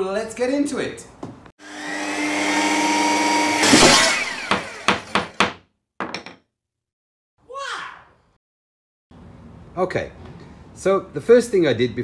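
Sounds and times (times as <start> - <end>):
power tool motor whining: 1.6 - 5.2
loud rasping burst: 1.6 - 5.4.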